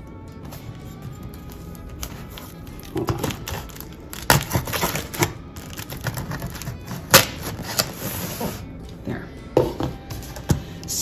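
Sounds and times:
knife slitting packing tape: 2.0s - 8.5s.

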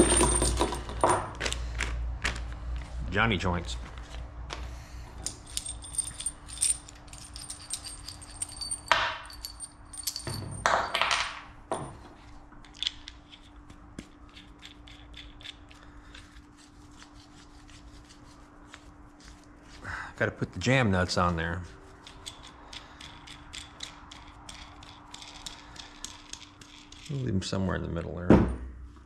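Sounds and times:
metal parts clinking on workbench: 0.0s - 1.3s, 5.2s - 12.0s.

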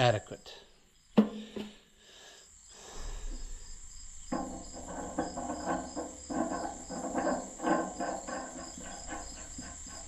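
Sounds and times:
crickets chirping: 0.0s - 10.0s
clunks and scrapes of work: 2.9s - 10.0s.

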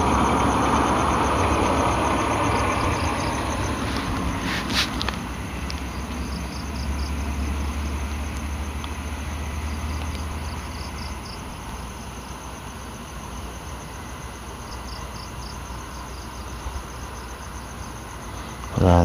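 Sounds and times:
low rumble: 0.0s - 6.8s
crickets chirping: 0.0s - 19.0s.

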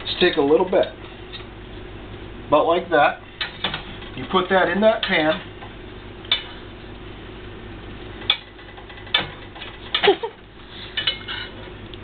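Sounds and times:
steady low hum: 0.0s - 12.0s
metal spoon scraping skillet: 10.7s - 11.6s.

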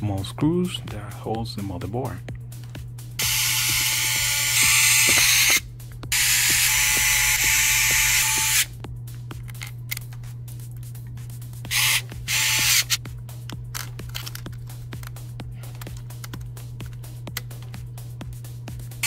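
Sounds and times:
electric screwdriver running: 3.2s - 8.7s, 11.7s - 13.0s.

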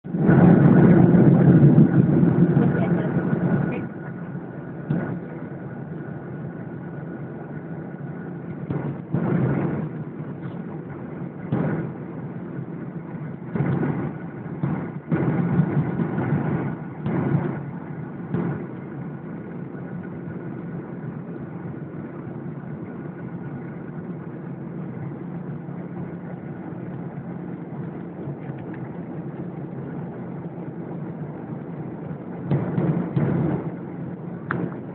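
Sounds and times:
jet airliner cabin drone: 0.0s - 34.9s.

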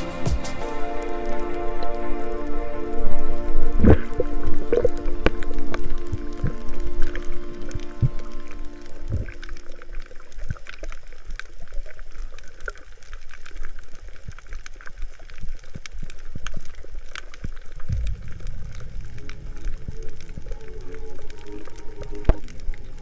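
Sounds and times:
background music: 0.0s - 9.8s, 19.5s - 23.0s
underwater rumble: 0.9s - 23.0s
underwater clicks and crackles: 1.4s - 23.0s.

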